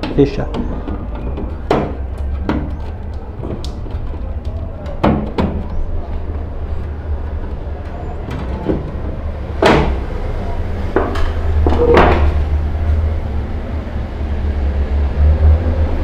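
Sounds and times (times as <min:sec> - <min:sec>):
plastic knocks and clicks: 0:00.0 - 0:06.3.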